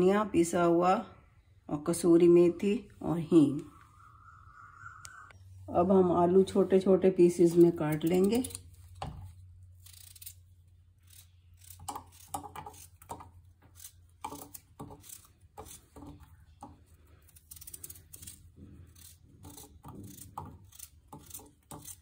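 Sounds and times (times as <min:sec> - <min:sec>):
knife cutting raw potatoes: 0:07.3 - 0:22.0.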